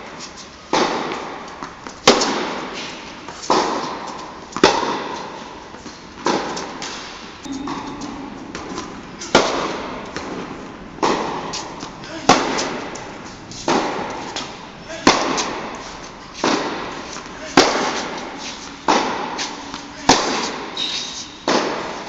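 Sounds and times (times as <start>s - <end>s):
racket hitting tennis ball: 0.7s - 7.8s, 8.4s - 22.0s
tennis ball bouncing: 8.6s - 20.6s.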